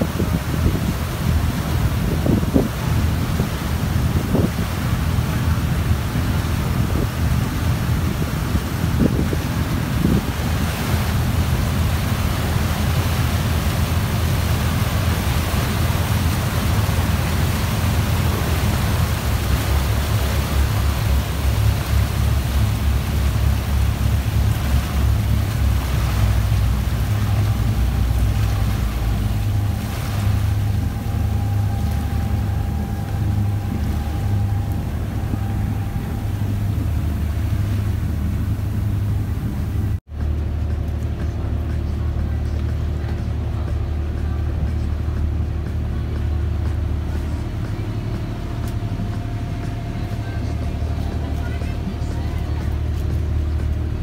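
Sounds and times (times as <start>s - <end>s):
wind buffeting microphone: 0.0s - 40.0s
motorboat engine running: 0.0s - 54.0s
water rushing along hull: 0.0s - 54.0s.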